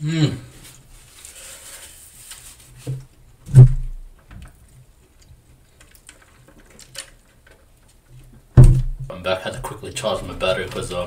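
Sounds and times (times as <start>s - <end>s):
loud low thump: 3.5s - 4.0s, 8.6s - 9.1s.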